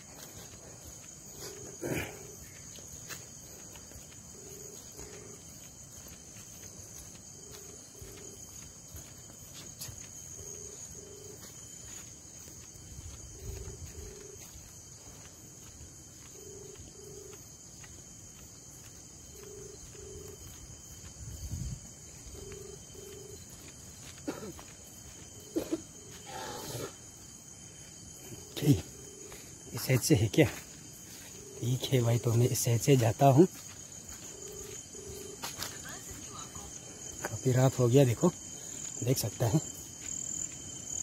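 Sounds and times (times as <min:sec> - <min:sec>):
crickets chirping: 0:00.0 - 0:41.0
footsteps on a path: 0:00.0 - 0:41.0.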